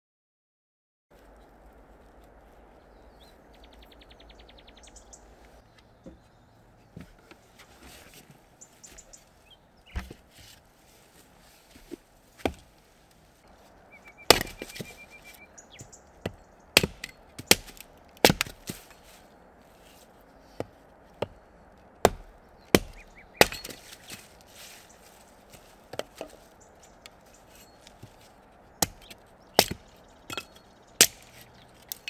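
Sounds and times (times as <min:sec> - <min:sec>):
hatchet chopping wood: 0:09.9 - 0:10.2, 0:14.3 - 0:15.0, 0:15.8 - 0:18.9, 0:22.0 - 0:24.3, 0:27.8 - 0:32.0
sharp wooden knocks: 0:22.0 - 0:23.9.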